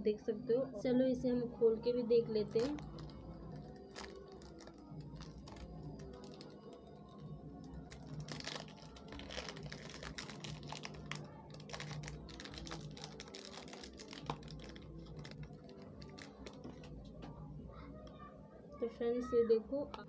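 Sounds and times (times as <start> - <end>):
plastic wrap crinkling: 2.4 - 17.3.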